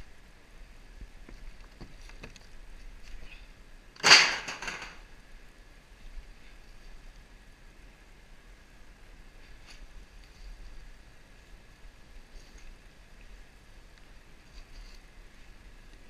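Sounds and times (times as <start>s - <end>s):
loud crack and tear: 4.0s - 5.0s.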